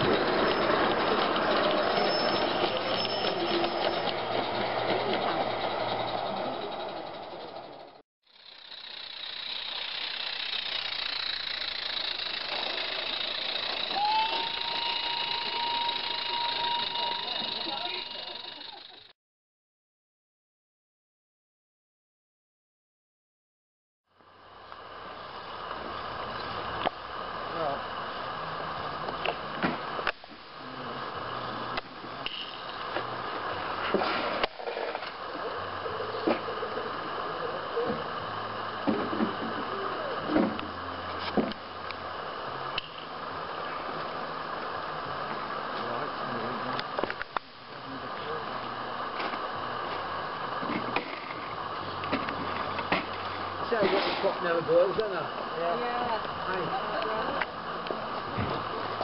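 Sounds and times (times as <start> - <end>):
high steam whistle: 0.0 - 7.2, 12.7 - 19.0
steam locomotive hissing: 0.0 - 19.1.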